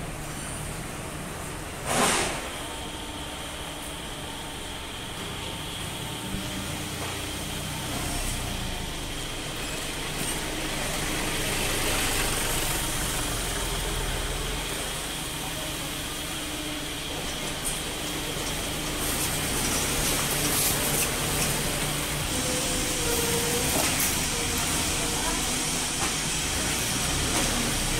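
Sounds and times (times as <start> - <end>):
hydraulic hiss: 1.8 - 3.9.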